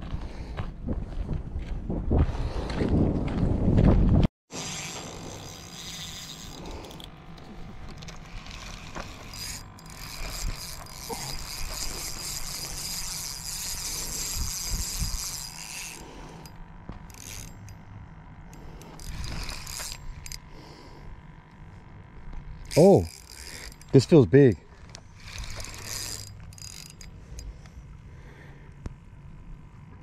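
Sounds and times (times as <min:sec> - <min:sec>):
fishing reel whirring: 0:04.5 - 0:28.7.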